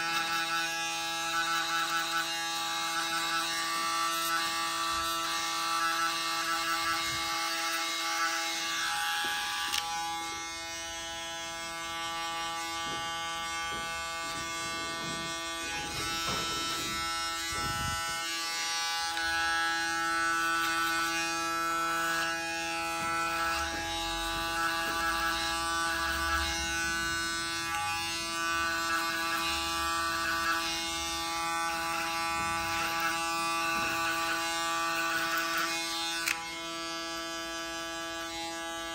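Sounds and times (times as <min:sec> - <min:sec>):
electric hair clipper buzzing: 0:00.0 - 0:38.9.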